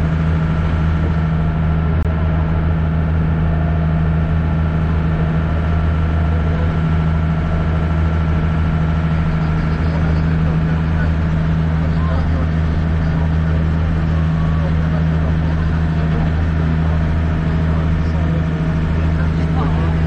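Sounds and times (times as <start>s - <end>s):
boat engine droning: 0.0s - 20.0s.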